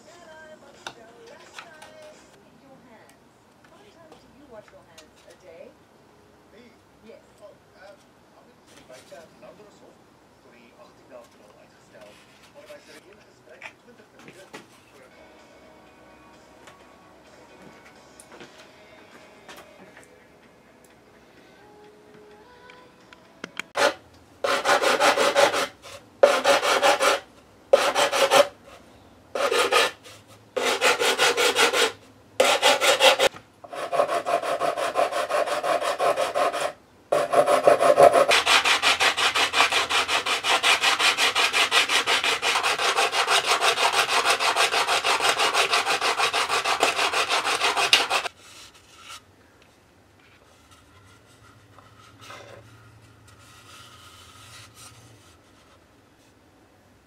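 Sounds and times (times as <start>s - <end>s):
faint handling noise: 11.2s - 15.1s
hand sanding wood: 23.8s - 28.6s, 29.4s - 49.2s.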